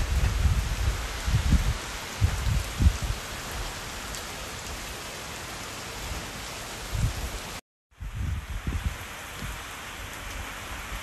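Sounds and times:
wind buffeting microphone: 0:00.0 - 0:03.6, 0:06.8 - 0:11.0
heavy rain on a street: 0:00.0 - 0:11.0.

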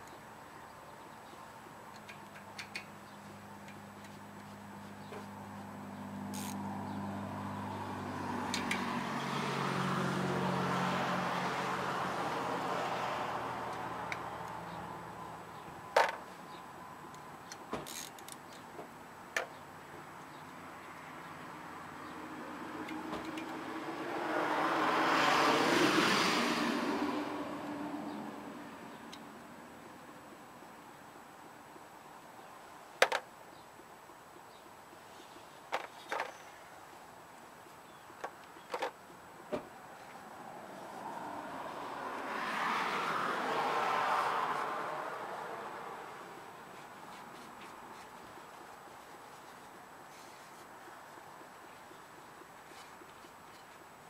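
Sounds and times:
metallic clicks of hand tools: 0:01.9 - 0:02.9
car passing: 0:04.6 - 0:17.0, 0:20.5 - 0:30.4, 0:39.4 - 0:48.6.

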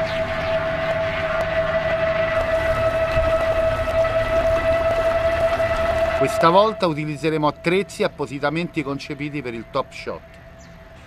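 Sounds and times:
motorboat engine whining: 0:00.0 - 0:11.0.

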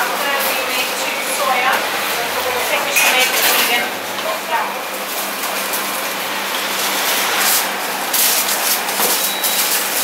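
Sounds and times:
aluminium foil crinkling: 0:06.7 - 0:10.0.

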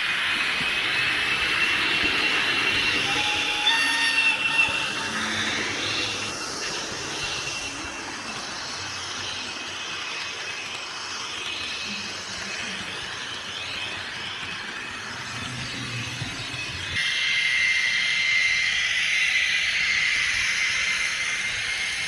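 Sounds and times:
model train rolling and whirring: 0:00.0 - 0:22.0.

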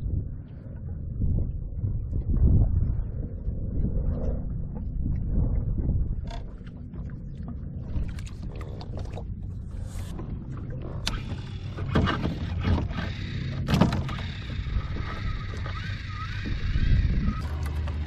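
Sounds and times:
wind rumble on microphone: 0:00.0 - 0:18.0
water sloshing against kayak: 0:04.7 - 0:18.0.

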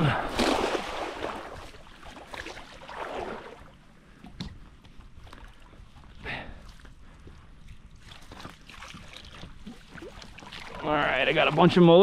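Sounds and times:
shallow water splashing: 0:00.0 - 0:04.2, 0:07.4 - 0:12.0.

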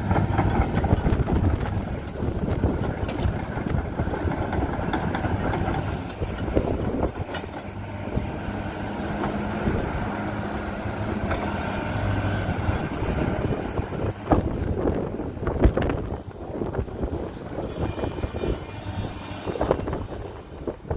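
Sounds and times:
excavator diesel engine running: 0:00.0 - 0:20.9
metallic clanks and squeaks: 0:04.0 - 0:06.6.

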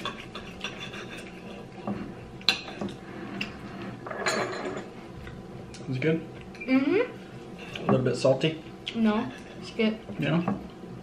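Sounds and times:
cutlery scraping on plates: 0:00.0 - 0:04.9, 0:09.2 - 0:09.7.

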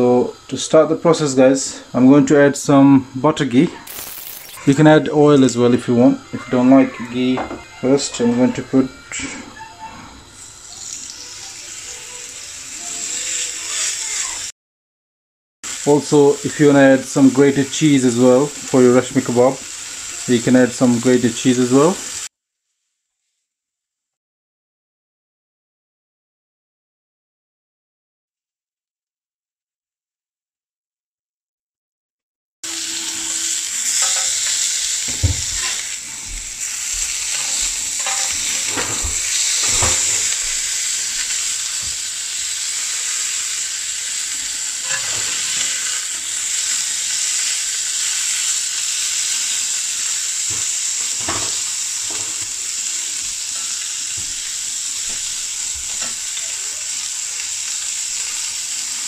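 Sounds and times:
meat patties sizzling in a pan: 0:00.1 - 0:09.7, 0:10.3 - 0:14.5, 0:15.7 - 0:23.4, 0:32.7 - 0:59.0
spatula scraping a pan: 0:33.3 - 0:40.7, 0:44.7 - 0:46.4, 0:50.5 - 0:54.0.

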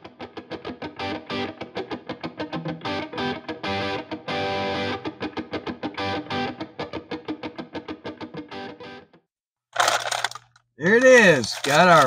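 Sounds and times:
distorted electric guitar: 0:00.0 - 0:07.1.

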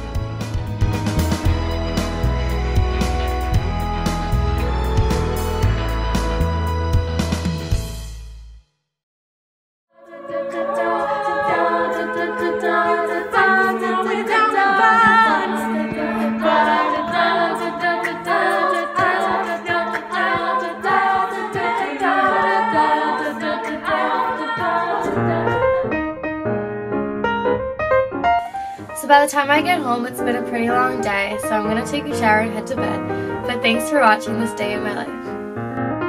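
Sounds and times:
women's a cappella singing: 0:10.0 - 0:25.8.

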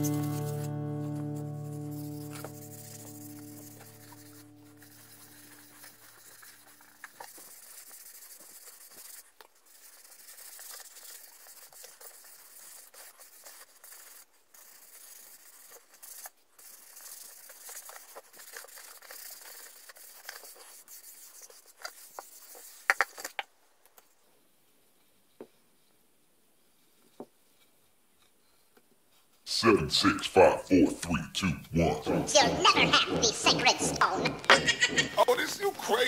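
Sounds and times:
music: 0:00.0 - 0:05.4
cloth rag rubbing wood: 0:00.0 - 0:23.3, 0:29.9 - 0:36.0.

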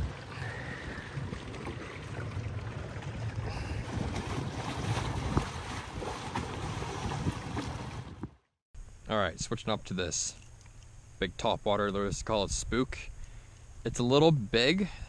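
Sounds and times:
water washing past hull: 0:00.0 - 0:08.3
boat motor running: 0:00.0 - 0:08.4
wind on microphone: 0:03.5 - 0:08.4.

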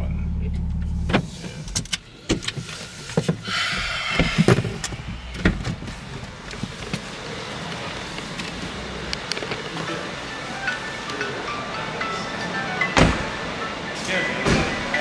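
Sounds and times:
short rushing hiss: 0:02.8 - 0:06.5.

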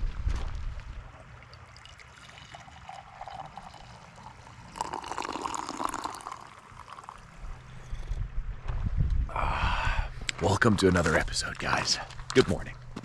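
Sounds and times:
coffee pouring into a mug: 0:01.5 - 0:07.4.

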